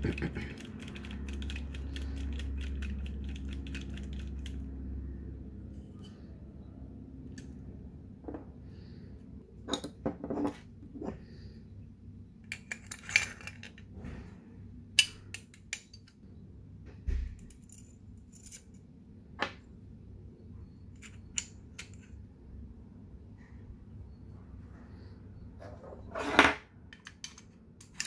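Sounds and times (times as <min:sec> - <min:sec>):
clicks and clinks of pistol parts: 0:26.9 - 0:28.0.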